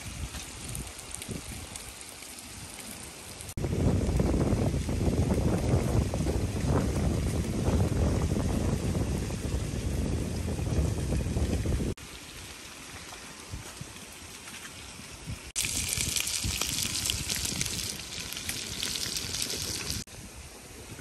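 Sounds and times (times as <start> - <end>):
water running and splashing: 0.0 - 20.1
loud hissing water spray: 15.6 - 20.1.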